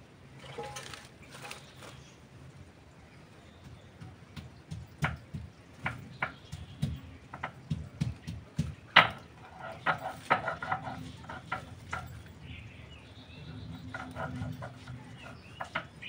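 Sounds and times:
sharp taps and clicks: 3.6 - 9.3.

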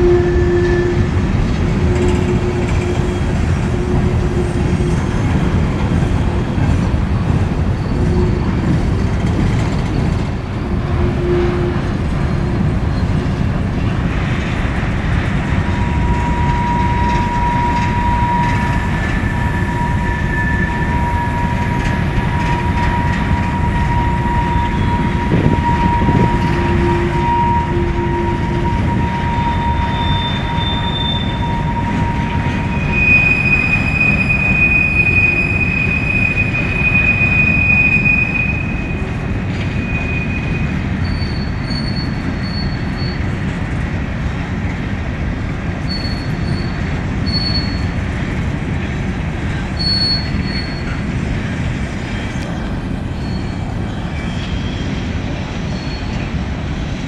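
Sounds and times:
high wheel squeal: 0.0 - 6.8, 14.2 - 43.4, 45.8 - 48.0, 49.5 - 51.2, 52.1 - 56.5
train wheels rumbling on rail: 0.0 - 57.0.

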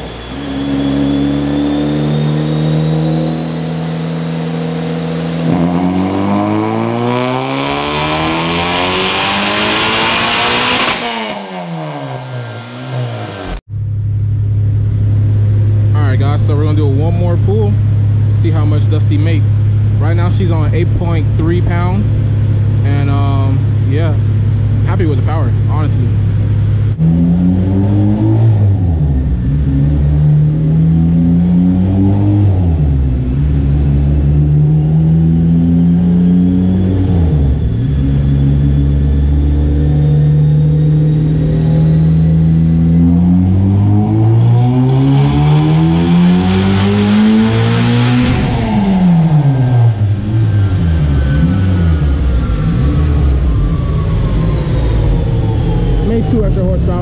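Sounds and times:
car engine revving on a dyno: 0.0 - 13.7, 26.2 - 57.0.

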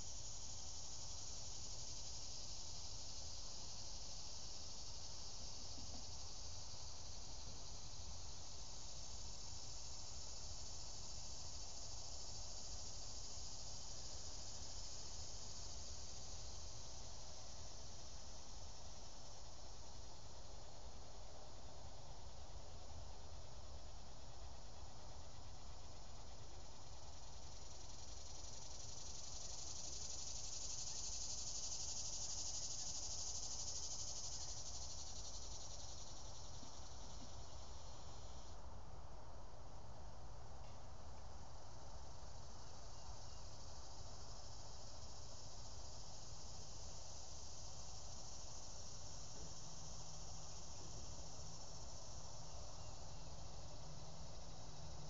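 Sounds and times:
insect chorus: 0.0 - 55.0
high buzzing insect drone: 24.0 - 38.5.

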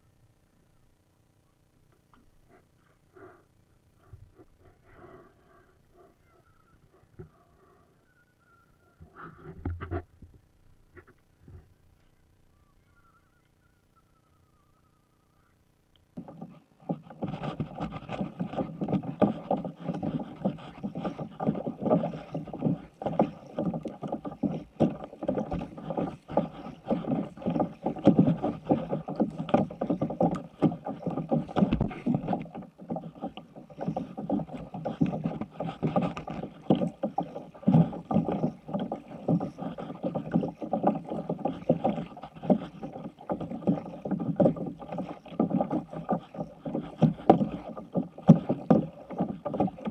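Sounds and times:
water splashing against kayak hull: 16.2 - 49.9.

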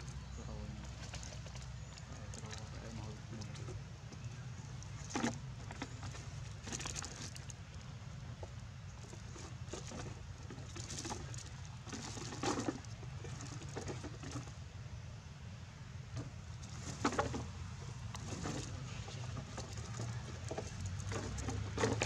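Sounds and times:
low background rumble: 0.0 - 22.0
dry leaves and bottles crackling: 3.4 - 7.9.

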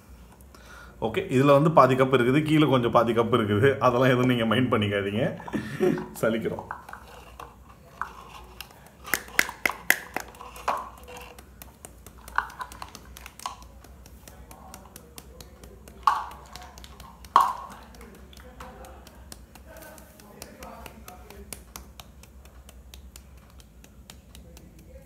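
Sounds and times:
hand tapping metal sieve: 5.5 - 25.0.

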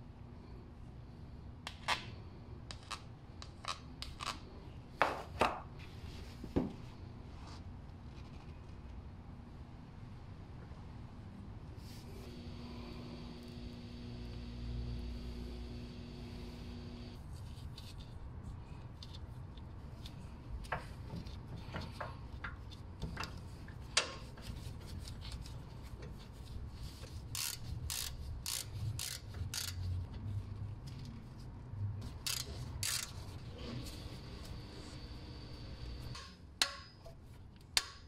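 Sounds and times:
ratchet wrench clicking: 27.3 - 29.9, 32.0 - 33.2.

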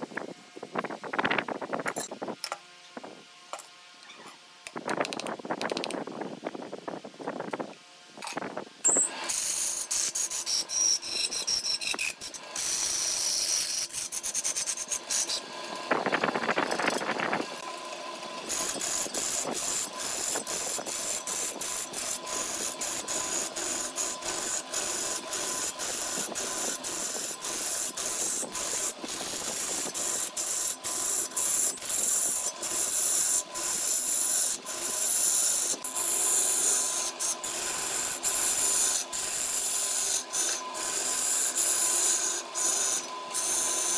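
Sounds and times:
gouge scraping wood on lathe: 12.6 - 15.4, 18.4 - 43.9.

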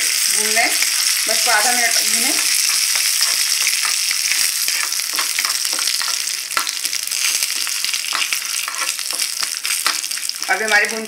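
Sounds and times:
spices sizzling in hot oil: 0.0 - 11.0
metal spoon stirring: 1.8 - 10.1.

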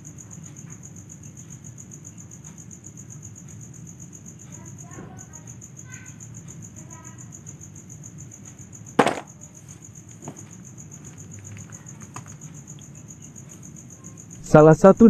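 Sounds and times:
crickets chirping: 0.0 - 15.0
plastic toy clacking into basket: 9.0 - 9.3
faint knocks: 10.2 - 10.6.

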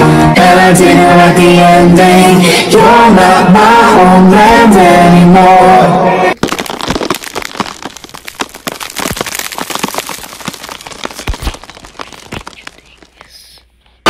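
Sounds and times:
bones cracking and snapping: 6.4 - 13.4.

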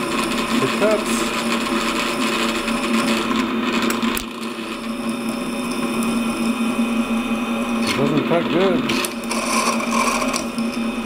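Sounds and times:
drill press motor hum: 0.0 - 11.0
drill bit rasping into metal: 8.9 - 10.8.

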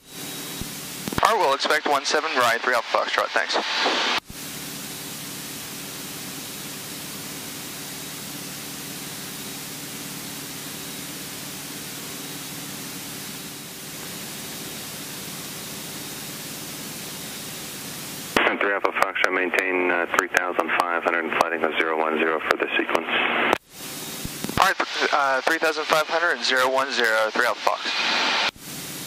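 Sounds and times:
light aircraft engine and propeller drone: 0.0 - 2.4, 4.3 - 18.4
cockpit hiss: 0.1 - 18.6, 23.5 - 29.0.

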